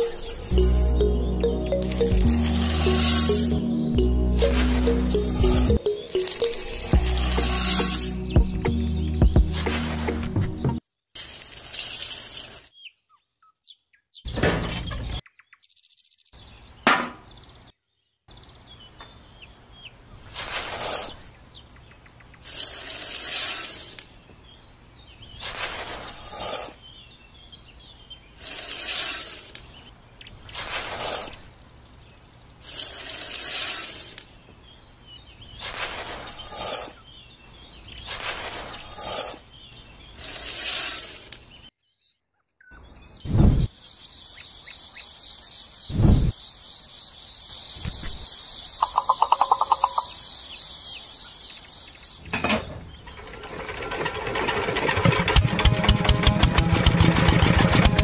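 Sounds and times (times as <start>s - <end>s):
wheat grains rattling into bucket: 11.2s - 12.6s.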